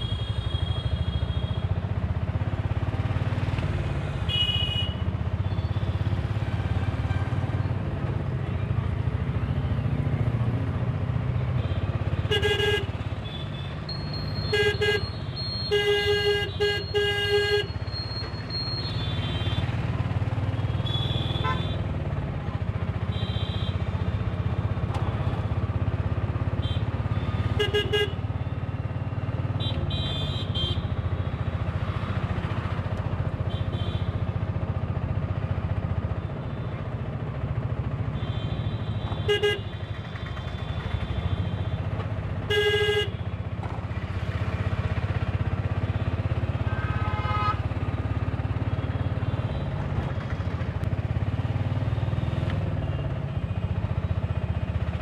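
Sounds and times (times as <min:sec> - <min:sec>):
auto-rickshaw engine running: 0:00.0 - 0:55.0
road traffic: 0:00.0 - 0:55.0
horns honking: 0:11.6 - 0:19.8, 0:20.6 - 0:21.9, 0:26.5 - 0:28.2, 0:38.1 - 0:43.3, 0:45.6 - 0:50.2.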